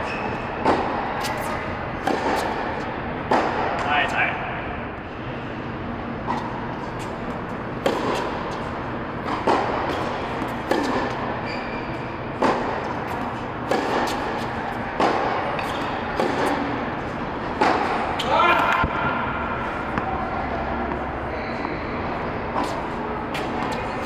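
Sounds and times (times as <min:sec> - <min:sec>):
tennis ball struck by rackets: 0:00.6 - 0:03.9, 0:07.7 - 0:11.3, 0:12.4 - 0:16.8, 0:17.4 - 0:20.1, 0:20.8 - 0:21.1, 0:22.5 - 0:23.9
ball bouncing on hard court: 0:07.8 - 0:11.7, 0:12.4 - 0:16.8.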